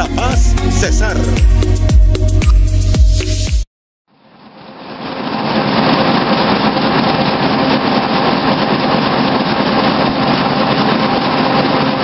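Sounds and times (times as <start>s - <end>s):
printing press running: 4.8s - 12.0s.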